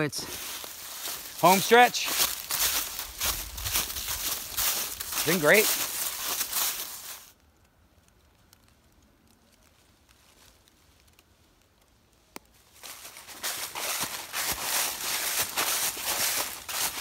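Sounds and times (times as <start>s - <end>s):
footsteps crunching dry leaves: 0.0s - 7.4s, 12.6s - 17.0s.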